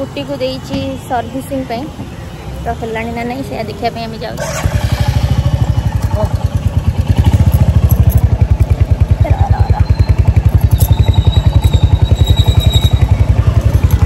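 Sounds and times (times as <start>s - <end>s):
motorcycle engine idling: 4.4s - 14.0s.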